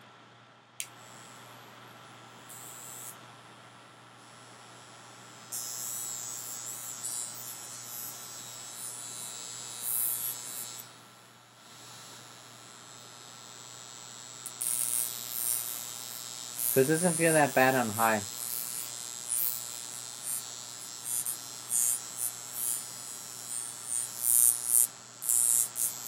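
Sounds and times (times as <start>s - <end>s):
electrical hum and buzz: 4.4s - 26.0s
high hiss: 16.7s - 18.3s.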